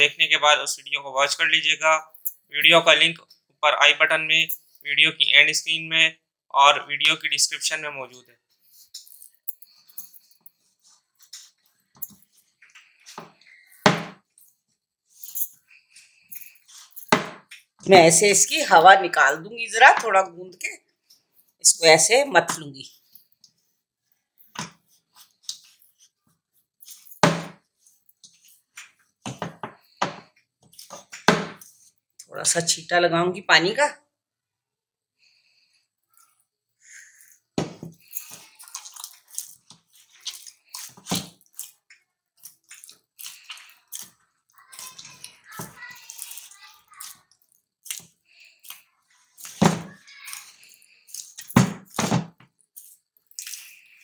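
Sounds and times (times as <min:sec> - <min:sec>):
dough thumping: 0:31.2 - 0:31.6
hands kneading dough: 0:38.0 - 0:54.0.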